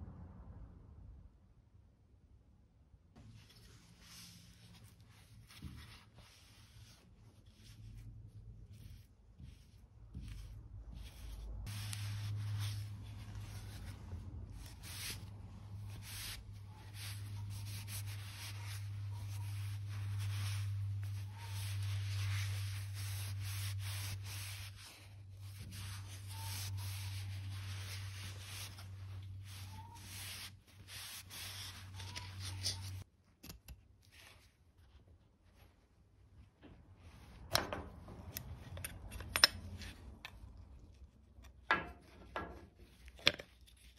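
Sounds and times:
cloth rubbing on wood: 3.2 - 33.0
faint handling sounds: 3.2 - 43.9.

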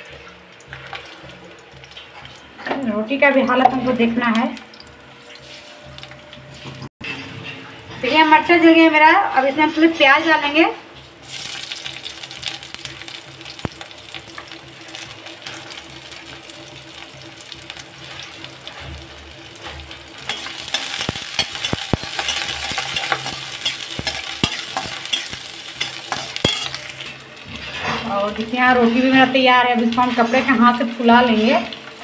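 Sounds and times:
onions frying in hot oil: 0.0 - 8.3, 9.0 - 32.0.

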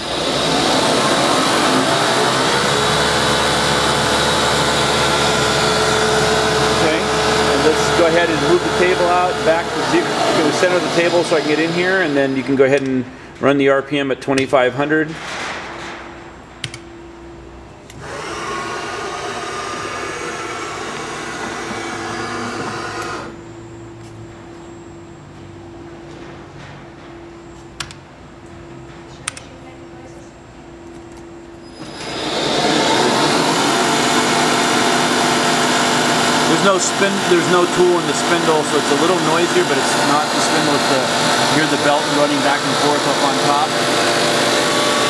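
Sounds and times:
drive belt running: 0.0 - 12.6, 18.0 - 23.4, 31.8 - 45.0
milling machine spindle running: 0.0 - 12.9, 17.9 - 23.6, 31.6 - 45.0.

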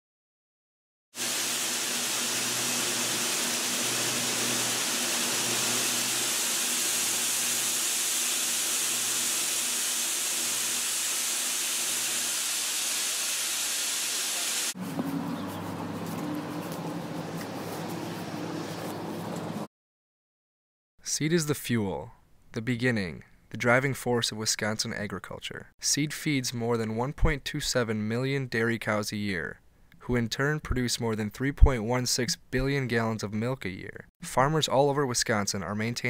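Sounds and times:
loud steady rushing hiss: 1.2 - 14.8.

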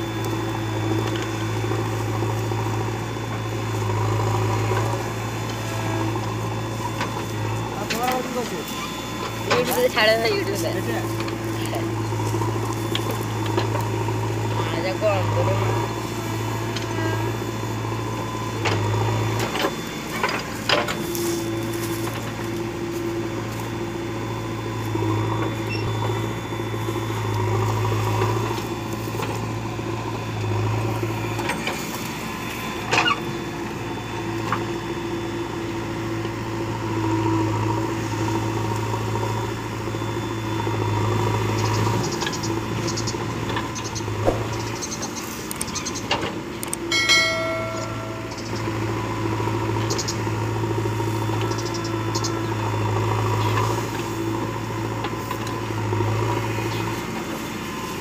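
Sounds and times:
diesel engine under load: 0.0 - 58.0.

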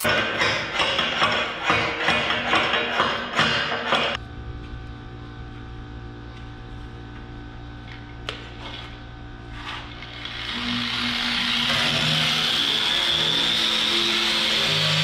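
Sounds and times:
machine hum: 3.9 - 15.0.

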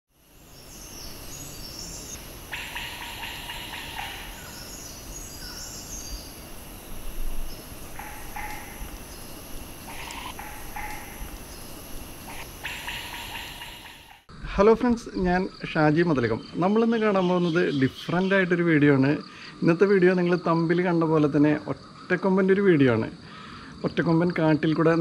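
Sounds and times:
insects droning: 0.1 - 25.0
rasping calls: 2.5 - 5.9, 7.8 - 9.1, 9.8 - 11.4, 12.2 - 14.3.

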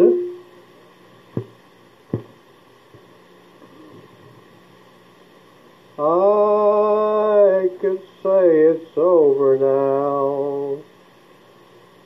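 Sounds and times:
low hum and hiss: 0.0 - 12.0
sharp knocks: 2.1 - 2.4.

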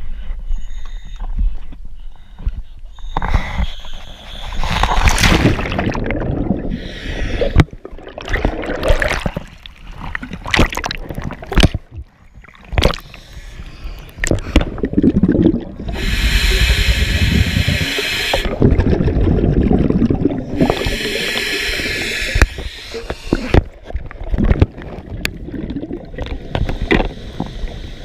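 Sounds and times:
underwater gurgling bubbles: 4.4 - 13.3, 14.0 - 28.0
sea water splashing: 4.6 - 11.9, 14.2 - 27.6.

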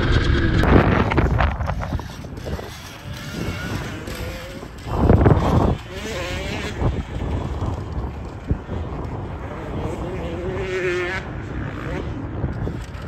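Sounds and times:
loud rush of noise: 0.0 - 2.7
electric motor whining: 0.0 - 8.2
wind noise on microphone: 0.0 - 13.0.

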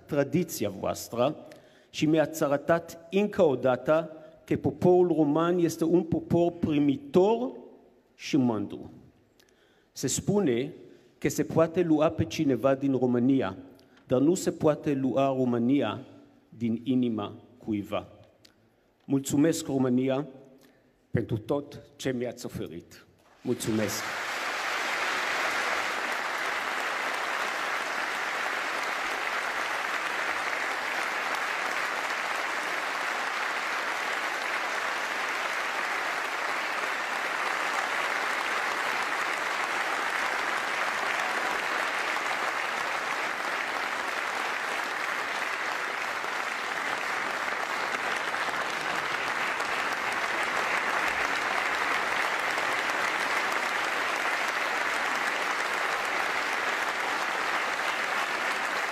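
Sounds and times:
audience applauding: 23.3 - 58.9.

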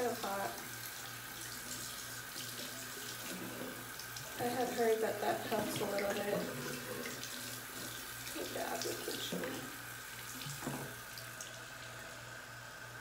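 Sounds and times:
tap running into sink: 3.2 - 7.4, 10.3 - 11.0.

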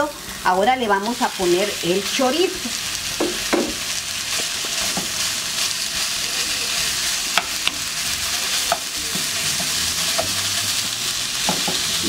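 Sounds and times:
sausage sizzling in hot oil: 0.0 - 12.0.

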